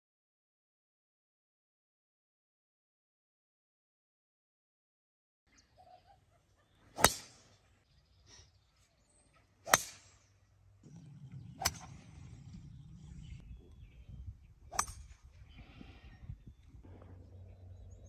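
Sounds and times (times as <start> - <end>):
golf club striking ball: 7.0 - 7.6, 9.7 - 13.4, 14.7 - 15.3
wind rumble: 10.7 - 18.0.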